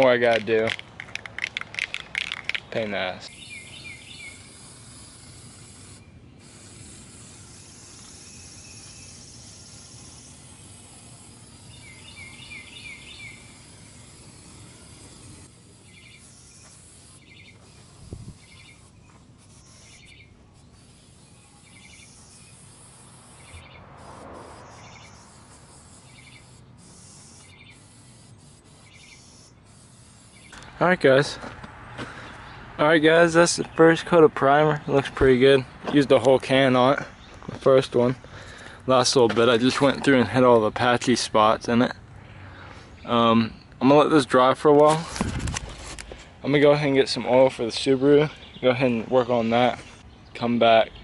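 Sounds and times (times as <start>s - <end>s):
spray can hissing: 0.3s - 2.7s, 3.3s - 30.7s
birds chirping: 2.1s - 6.5s, 7.3s - 44.8s, 45.7s - 51.0s.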